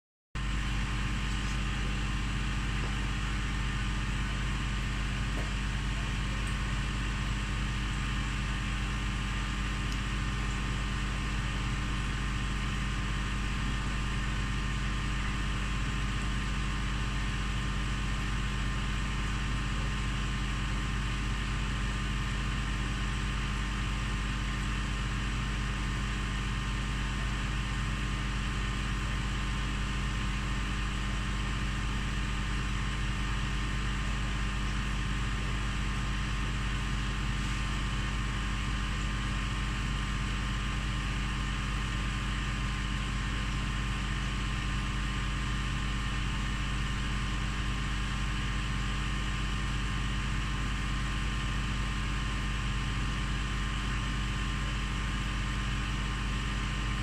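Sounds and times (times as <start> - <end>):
aquarium equipment humming: 0.4 - 57.0.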